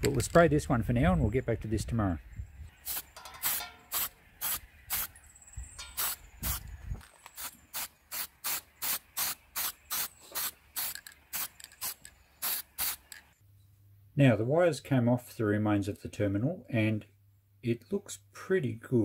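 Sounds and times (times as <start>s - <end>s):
spray paint can hissing bursts: 2.8s - 5.1s, 5.8s - 6.7s, 7.3s - 13.3s.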